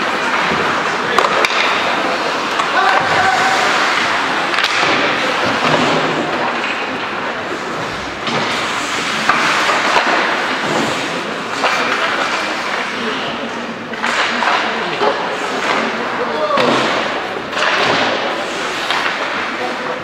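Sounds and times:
skates scraping ice: 0.0 - 20.0
hockey stick and puck knocks: 0.4 - 3.2.

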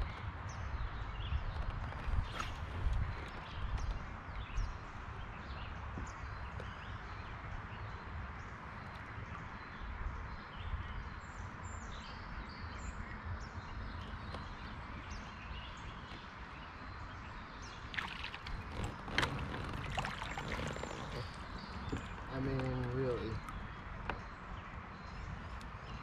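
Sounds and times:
low wind rumble: 0.0 - 26.0
water rushing: 17.8 - 23.6.

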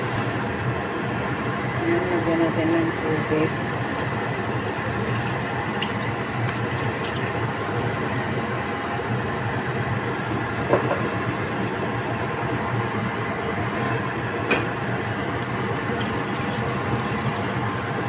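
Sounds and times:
liquid pouring into pot: 3.5 - 7.7, 16.0 - 17.8.

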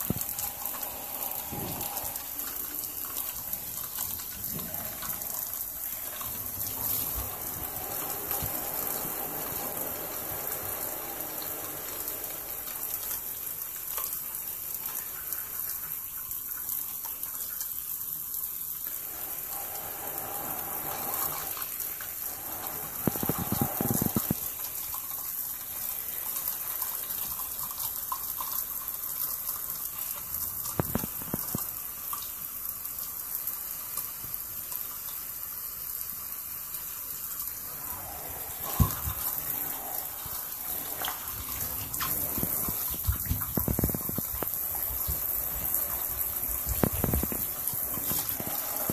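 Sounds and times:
shower water spraying: 0.0 - 48.9
water splashing: 37.5 - 48.9.

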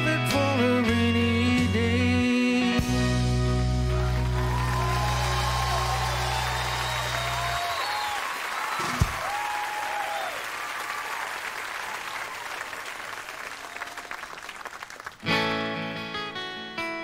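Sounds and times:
audience applauding and cheering: 3.8 - 15.4
whistles from audience: 4.5 - 12.8
acoustic guitar strumming: 15.3 - 17.0.

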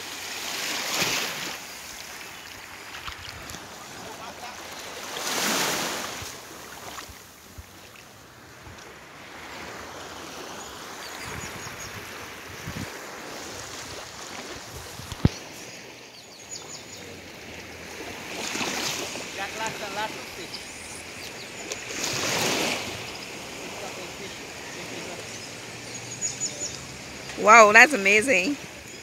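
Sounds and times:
small waves lapping on shore: 0.0 - 29.0
wind on microphone: 11.2 - 14.0.

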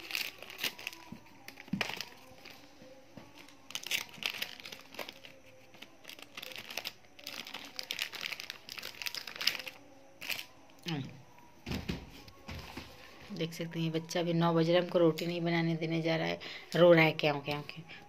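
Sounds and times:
plastic packaging crinkling: 0.0 - 2.6, 3.3 - 10.5.

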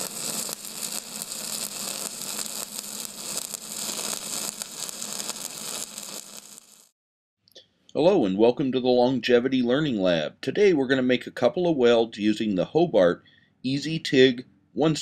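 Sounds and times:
crackling hiss: 0.0 - 6.9.

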